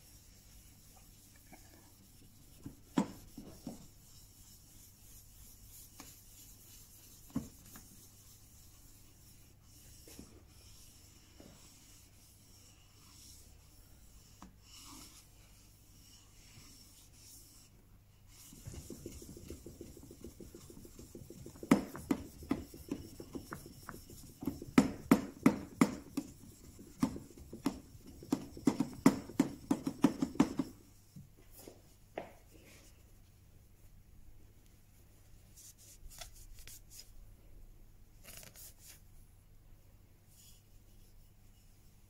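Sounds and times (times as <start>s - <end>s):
chisel rubbing on whetstone: 18.4s - 30.7s.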